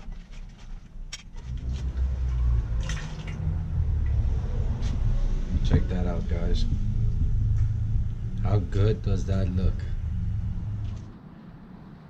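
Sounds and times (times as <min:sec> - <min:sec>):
low rumble: 0:00.0 - 0:11.2
water draining and dripping: 0:02.2 - 0:04.4.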